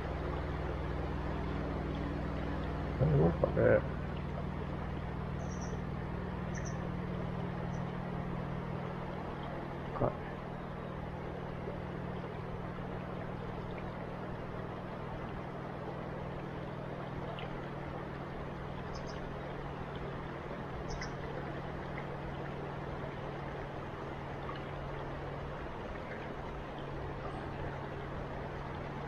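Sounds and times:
river water flowing: 0.0 - 29.0
faint high chirps: 5.4 - 5.8, 6.5 - 6.8.

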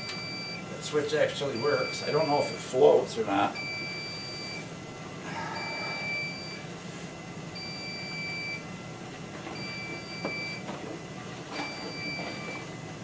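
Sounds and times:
alarm beeping: 0.0 - 0.7, 1.4 - 2.8, 3.6 - 4.7, 5.5 - 6.7, 7.5 - 8.7, 9.6 - 10.6, 11.5 - 12.7.

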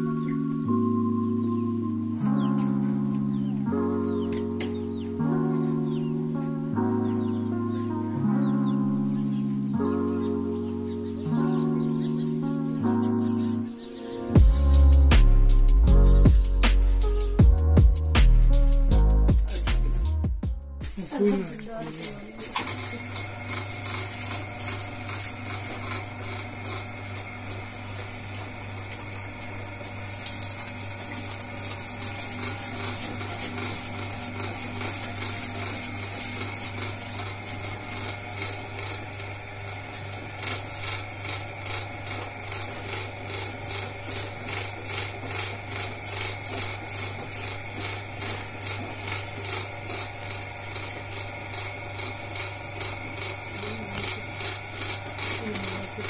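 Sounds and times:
potter's wheel humming: 20.9 - 56.0
regular pulsing of spinning clay: 21.8 - 29.0, 30.4 - 56.0.

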